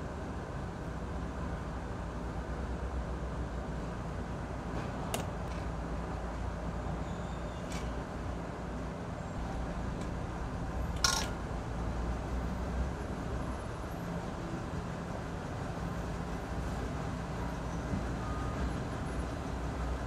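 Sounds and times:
spoon clinking in ceramic bowl: 0:11.0 - 0:11.4.

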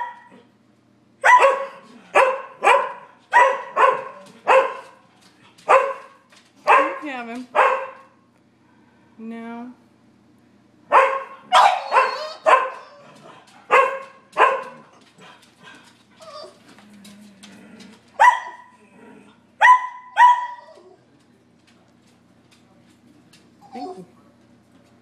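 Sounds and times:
sharp high-pitched barks: 0:01.2 - 0:04.9, 0:06.7 - 0:07.0, 0:07.6 - 0:08.0, 0:10.9 - 0:12.8, 0:18.2 - 0:18.6, 0:19.6 - 0:20.6
dogs barking: 0:01.2 - 0:05.0, 0:05.6 - 0:08.2, 0:10.9 - 0:15.4, 0:18.2 - 0:18.8, 0:19.6 - 0:20.8.

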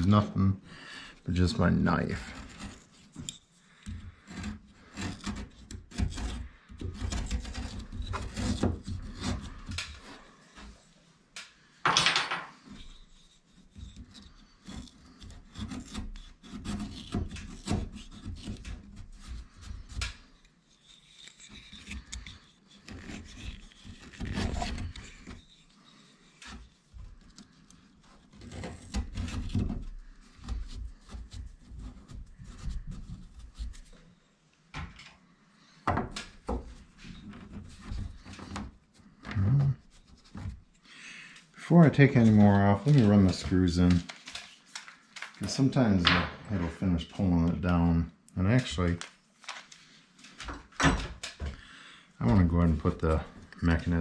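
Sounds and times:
knife blade scraping wood: 0:01.6 - 0:10.9, 0:12.5 - 0:34.1.

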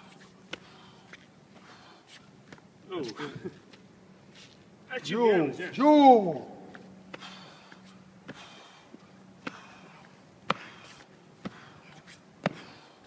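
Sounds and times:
faint steady hum: 0:00.0 - 0:13.0
faint breathing: 0:00.5 - 0:02.3, 0:07.1 - 0:13.0.

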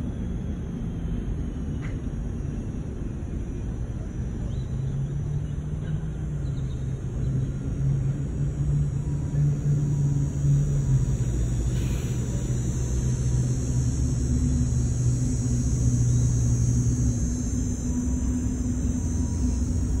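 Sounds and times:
low motor hum and rumble: 0:00.0 - 0:20.0
steady high hiss: 0:08.0 - 0:20.0.

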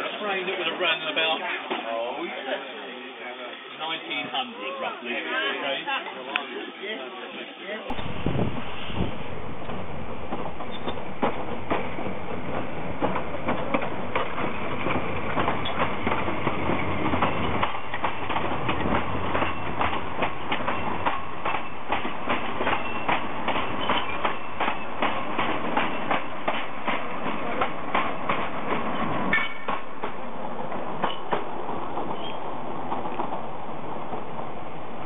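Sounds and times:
steam train rumble: 0:07.9 - 0:35.0
wheels clicking over rail joints: 0:09.6 - 0:34.4.

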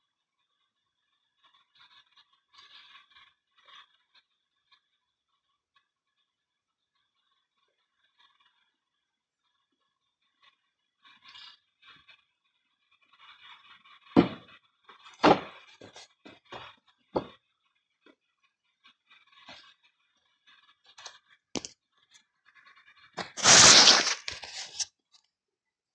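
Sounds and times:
dull thumps and light knocks: 0:14.2 - 0:14.5, 0:15.2 - 0:17.4
camera handling scraping rustle: 0:15.1 - 0:17.3, 0:23.2 - 0:24.9.

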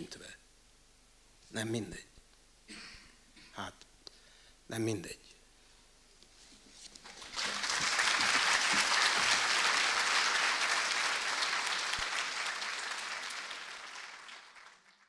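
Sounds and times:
audience applauding: 0:07.0 - 0:15.0.

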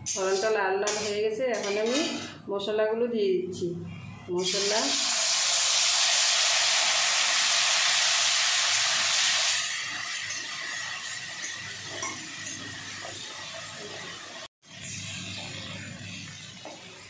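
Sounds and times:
spice paste sizzling in hot oil: 0:04.5 - 0:17.0.

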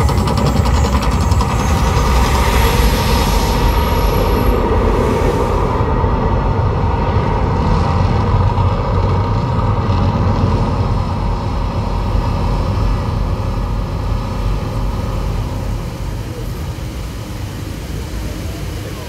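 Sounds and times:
deep steady rumbling: 0:00.0 - 0:19.0.

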